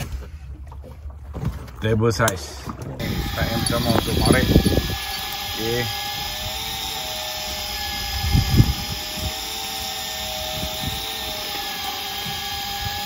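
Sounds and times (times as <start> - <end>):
electric fishing reel whine: 3.0 - 13.0.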